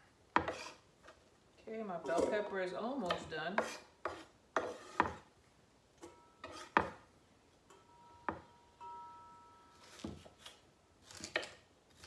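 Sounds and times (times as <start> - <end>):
faint ringing tone: 7.7 - 10.0.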